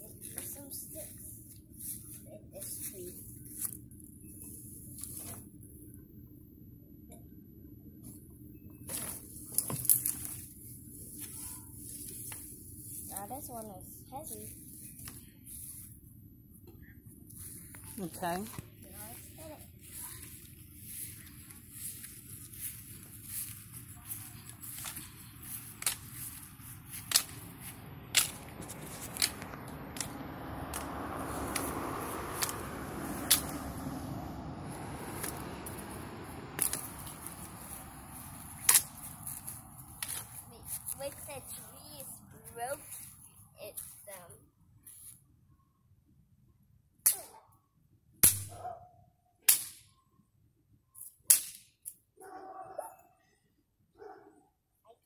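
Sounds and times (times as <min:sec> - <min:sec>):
sticks cracking against tree trunk: 0:09.5 - 0:10.5, 0:24.6 - 0:33.8, 0:35.1 - 0:35.9, 0:36.5 - 0:41.0
passing car: 0:26.5 - 0:40.1.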